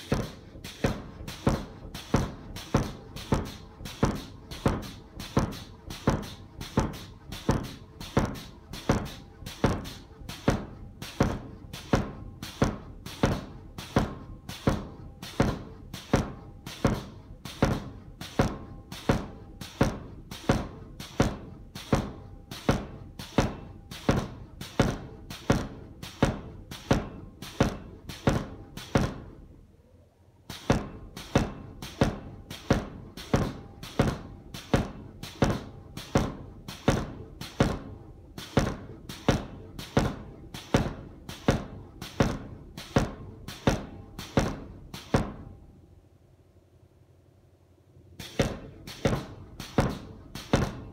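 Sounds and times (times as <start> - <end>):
power hammer striking hot steel: 0.0 - 29.5, 30.5 - 45.6, 48.2 - 50.9.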